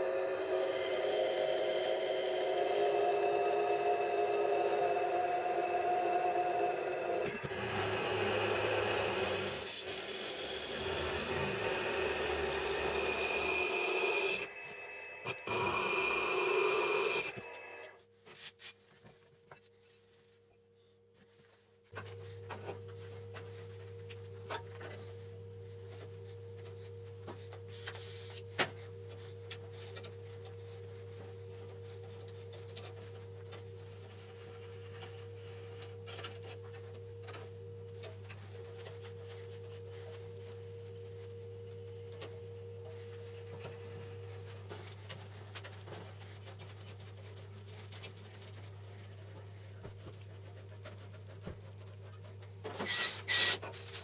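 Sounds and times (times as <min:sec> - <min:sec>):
drill press grinding through steel: 0:00.0 - 0:17.9
steady low hum: 0:19.2 - 0:52.7.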